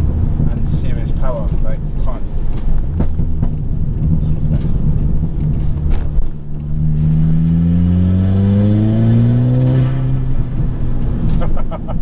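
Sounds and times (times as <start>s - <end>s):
car engine accelerating hard: 2.8s - 12.0s.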